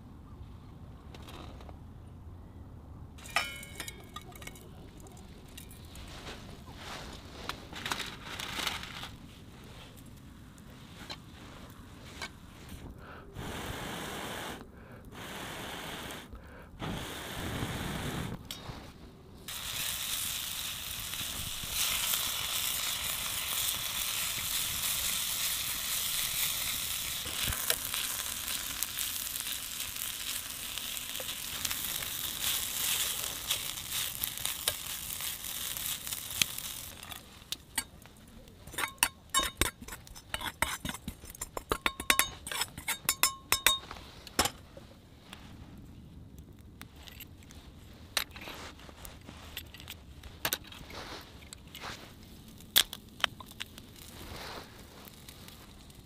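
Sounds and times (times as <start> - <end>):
noodles sizzling in a wok: 19.5 - 37.4.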